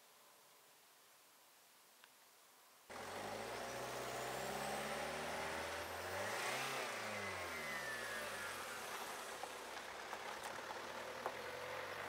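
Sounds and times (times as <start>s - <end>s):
vehicle driving past: 2.9s - 12.0s.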